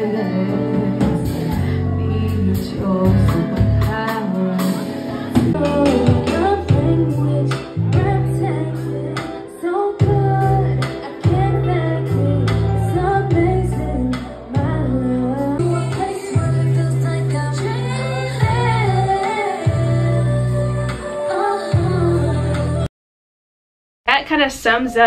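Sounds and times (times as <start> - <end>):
bass line: 0.0 - 22.9
woman singing into microphone: 0.0 - 22.9
steady drum beat: 5.4 - 7.1.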